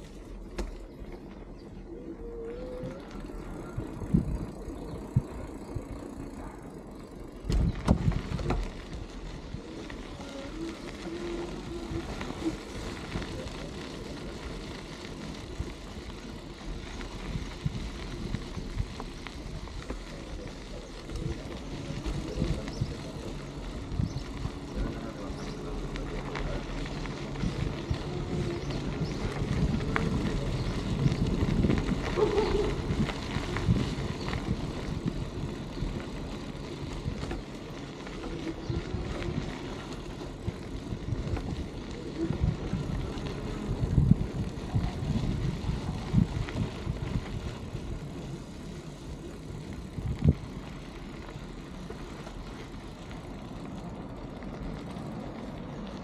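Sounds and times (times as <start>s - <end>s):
bicycle tyres rumbling on dirt: 0.0s - 56.0s
bike rattling over bumps: 0.0s - 56.0s
wind on microphone: 2.1s - 5.9s, 7.4s - 13.8s, 17.0s - 37.4s, 38.2s - 48.4s, 49.2s - 50.6s.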